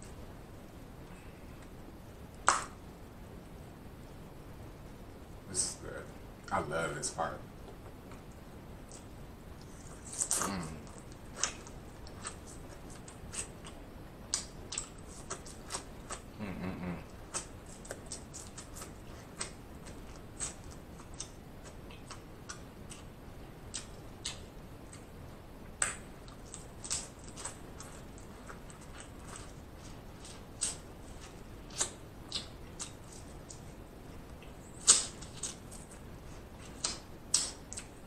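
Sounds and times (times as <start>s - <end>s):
chewing and lip smacking: 7.7s - 23.1s, 23.7s - 25.1s, 25.8s - 38.0s.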